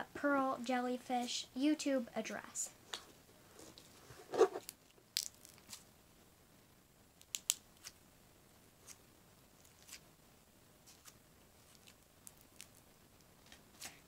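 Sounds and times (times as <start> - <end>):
sticky slime clicks and snaps: 7.2 - 7.9.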